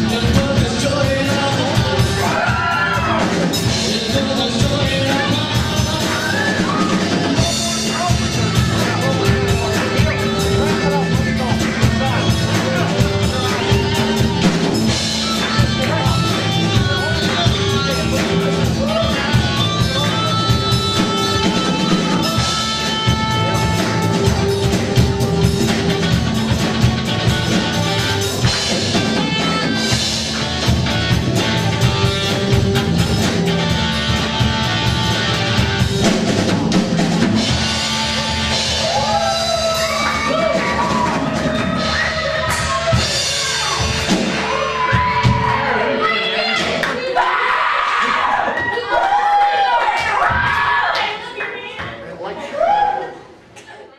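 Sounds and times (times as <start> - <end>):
voices over music: 0.0 - 24.6, 38.8 - 53.9
live rock band playing: 0.0 - 50.5.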